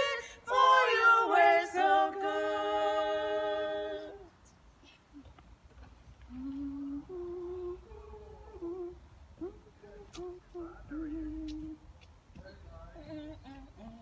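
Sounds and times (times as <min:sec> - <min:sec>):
women humming a hymn: 0:06.2 - 0:11.8, 0:13.0 - 0:14.0.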